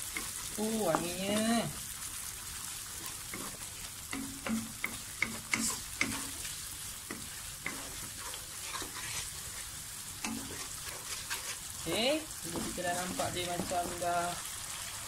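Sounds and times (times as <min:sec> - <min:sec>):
food sizzling in a wok: 0:00.0 - 0:15.0
spatula scraping and knocking pan: 0:03.0 - 0:14.2.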